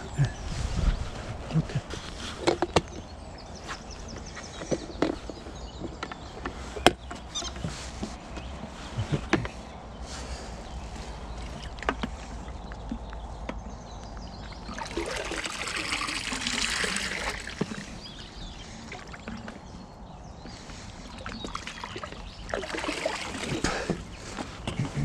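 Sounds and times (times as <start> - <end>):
water trickling and splashing: 10.7 - 24.7.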